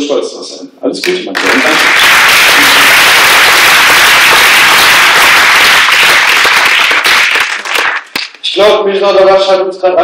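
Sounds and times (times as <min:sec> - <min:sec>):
audience applauding: 0:01.3 - 0:08.4.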